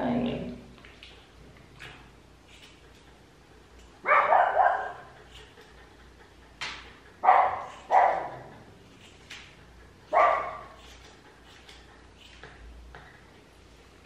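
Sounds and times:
dog barking sharply: 4.0s - 5.1s, 7.2s - 8.3s, 10.1s - 10.7s.

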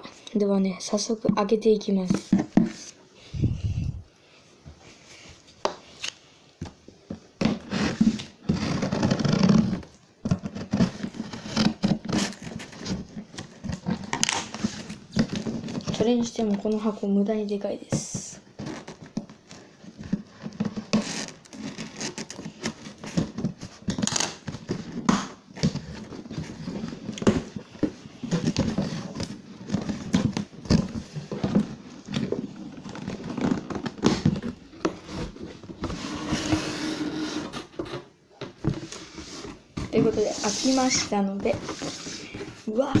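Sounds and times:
cardboard box scratching and rustling: 39.2s - 42.4s.

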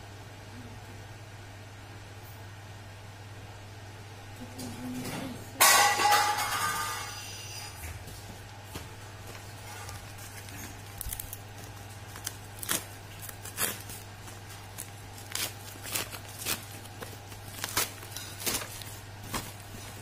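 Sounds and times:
plastic bag crinkling and tearing: 9.3s - 20.0s.

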